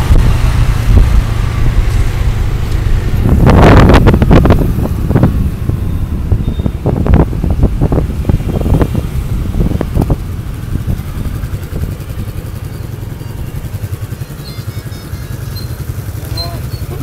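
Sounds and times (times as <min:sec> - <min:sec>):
wind buffeting microphone: 0:00.0 - 0:14.3
motorbike engines rumbling: 0:00.0 - 0:17.0
traffic: 0:00.0 - 0:17.0.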